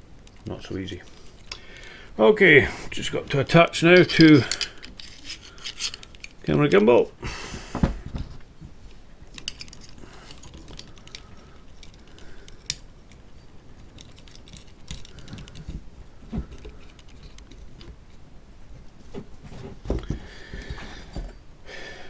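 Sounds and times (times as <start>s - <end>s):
small parts clicking and rattling: 4.0s - 6.6s, 9.3s - 18.3s.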